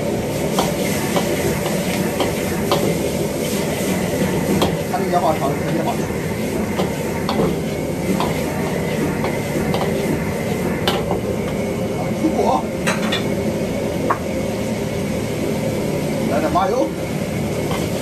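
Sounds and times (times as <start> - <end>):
wok sizzling: 0.0 - 18.0.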